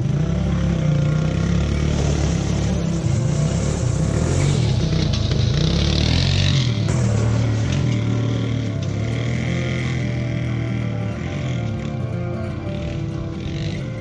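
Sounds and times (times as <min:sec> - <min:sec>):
atv engine running: 0:00.0 - 0:14.0.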